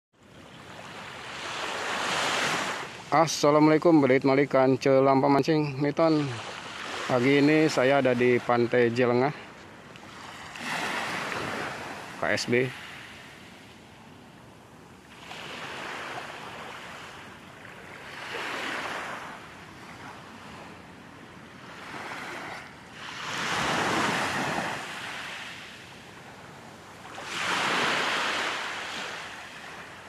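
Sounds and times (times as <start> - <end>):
small waves breaking on beach: 0.2 - 30.0.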